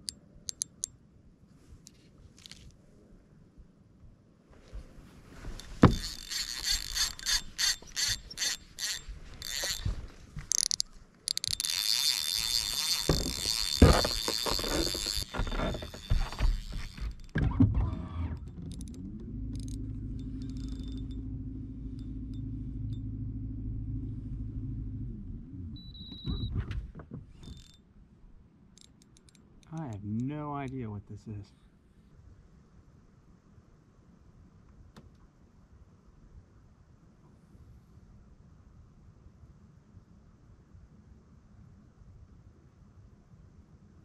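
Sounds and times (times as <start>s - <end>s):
steady low hum: 4.7s - 27.0s
fishing reel drag buzzing: 5.6s - 17.2s, 19.5s - 21.2s.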